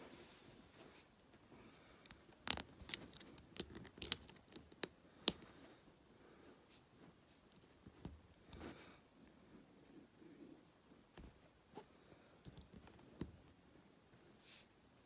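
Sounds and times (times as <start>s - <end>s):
plastic pieces clicking: 2.0s - 5.4s.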